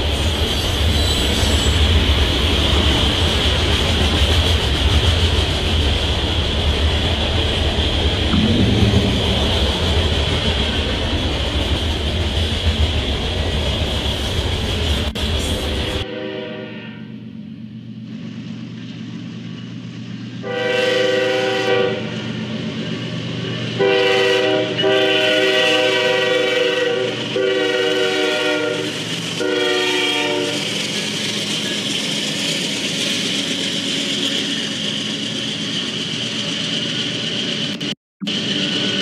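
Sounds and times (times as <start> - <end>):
train wheels rolling on rails: 0.0 - 16.1, 17.2 - 39.0
locomotive air horn blasts: 16.0 - 17.1, 20.4 - 22.2, 23.8 - 30.6.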